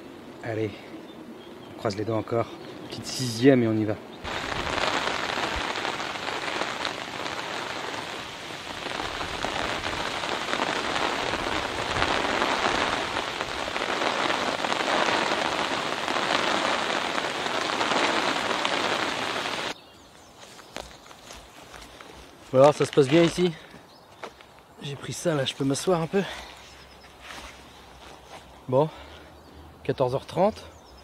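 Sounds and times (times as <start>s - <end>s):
rain falling: 4.2s - 19.8s.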